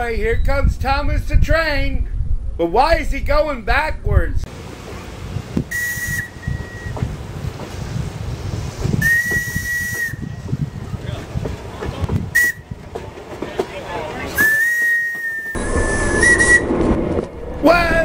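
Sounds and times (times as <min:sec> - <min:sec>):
train rumbling on track: 0:04.5 - 0:18.0
steam locomotive whistle: 0:05.7 - 0:07.1, 0:08.9 - 0:10.4, 0:12.3 - 0:12.7, 0:14.4 - 0:16.6.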